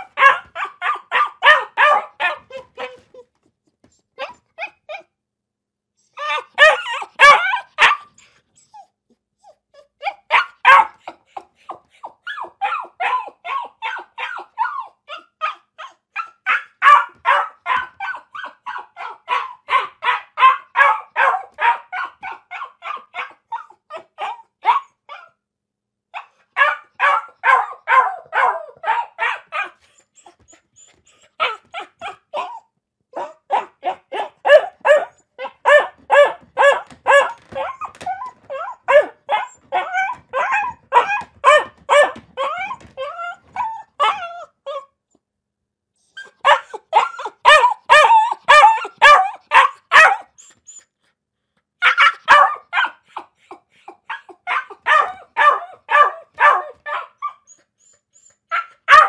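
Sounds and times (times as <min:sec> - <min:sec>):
dog barking rapidly: 0:00.0 - 0:03.0, 0:06.2 - 0:08.1, 0:10.1 - 0:11.1, 0:12.2 - 0:14.8, 0:16.2 - 0:24.9, 0:26.2 - 0:29.8, 0:33.2 - 0:44.3, 0:46.4 - 0:50.3, 0:51.8 - 0:53.2, 0:54.1 - 0:57.3, 0:58.5 - 0:59.0.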